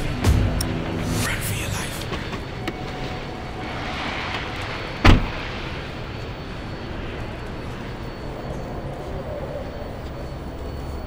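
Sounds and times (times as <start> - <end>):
steady background noise: 0.0 - 11.0
truck door slamming: 5.0 - 5.4.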